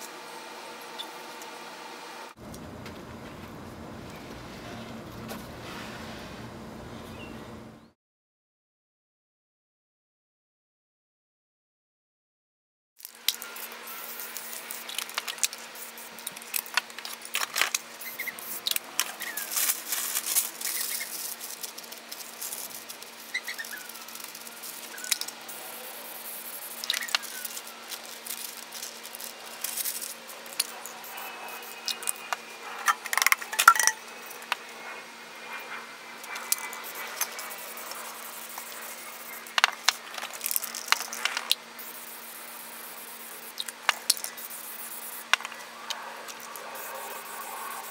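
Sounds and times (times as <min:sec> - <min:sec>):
faint steady hum: 0:00.0 - 0:07.9
spray paint can hissing: 0:13.1 - 0:32.3, 0:36.2 - 0:45.6, 0:46.3 - 0:47.9
cans and paper rattling: 0:14.2 - 0:30.8, 0:32.8 - 0:34.0, 0:36.5 - 0:41.6.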